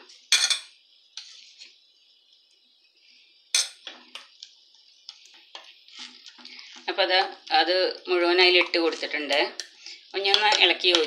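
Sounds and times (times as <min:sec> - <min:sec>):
faint steady hiss: 0:00.0 - 0:11.0
spoon clinking against ceramic bowl: 0:03.6 - 0:03.9.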